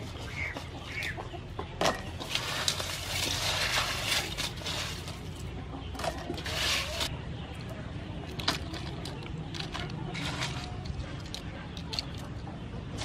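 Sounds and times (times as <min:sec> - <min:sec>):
ice and shells rattling in bowl: 0:02.2 - 0:05.4, 0:08.3 - 0:12.3.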